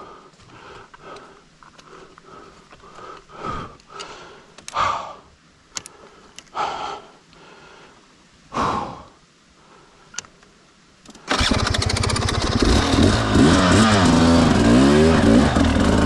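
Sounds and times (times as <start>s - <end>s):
person breathing hard: 0.0s - 10.2s.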